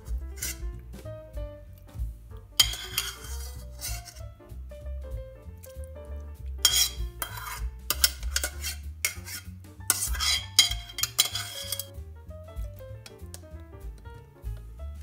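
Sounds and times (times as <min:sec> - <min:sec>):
metal spoon scraping frying pan: 0:00.0 - 0:00.8, 0:02.6 - 0:04.3, 0:06.6 - 0:12.0, 0:13.0 - 0:13.4.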